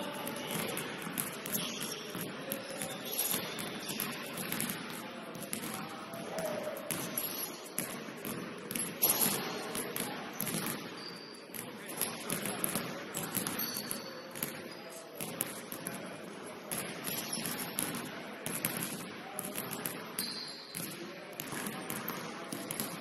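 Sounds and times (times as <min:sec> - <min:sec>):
players' voices echoing: 0:00.0 - 0:23.0
basketball bouncing on wooden court: 0:00.2 - 0:16.0, 0:16.7 - 0:23.0
sneaker squeaks: 0:00.5 - 0:04.5, 0:06.3 - 0:07.8, 0:10.4 - 0:11.7, 0:13.4 - 0:15.0, 0:17.1 - 0:17.8, 0:20.2 - 0:20.8.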